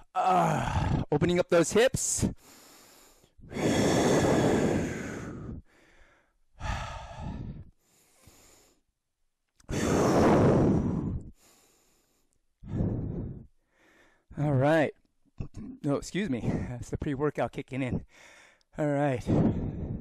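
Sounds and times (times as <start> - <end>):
man breathing heavily: 2.2 - 8.9, 9.7 - 14.4, 18.0 - 20.0.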